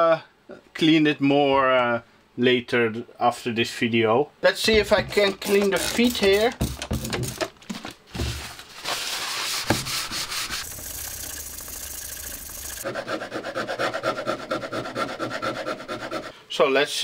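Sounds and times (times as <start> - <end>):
squeaky rhythmic scrubbing: 4.7 - 6.9
cloth scrubbing plastic: 4.7 - 12.8.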